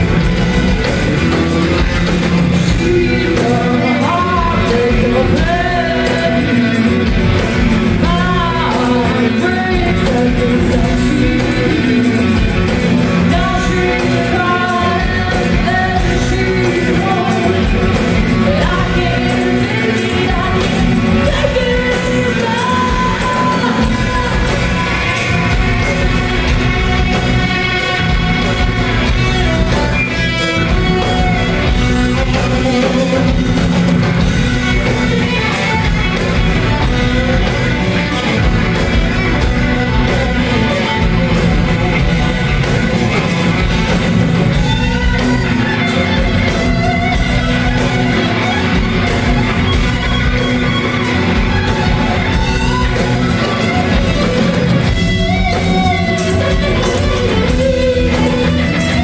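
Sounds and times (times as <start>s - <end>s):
live rock band playing: 0.0s - 59.0s
woman singing: 2.6s - 33.7s.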